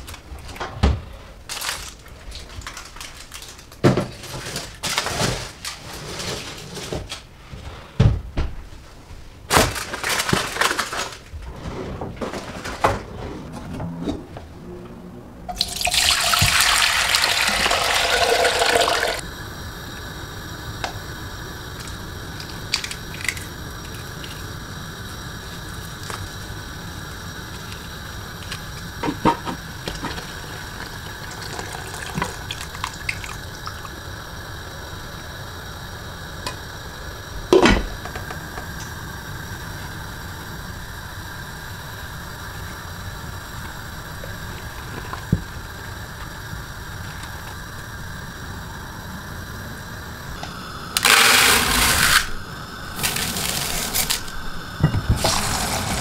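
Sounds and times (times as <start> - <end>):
water running into a pot: 15.5 - 19.2, 21.6 - 35.0, 53.0 - 56.0.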